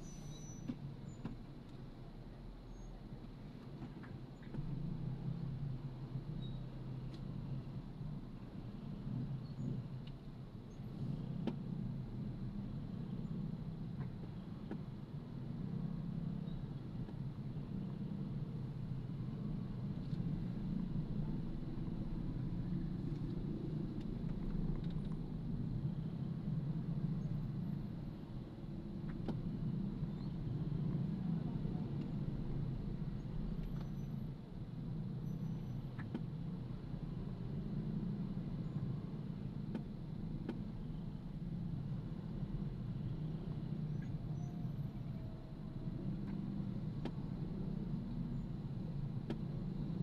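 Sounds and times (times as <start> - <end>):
car engine and road noise: 0.0 - 50.0.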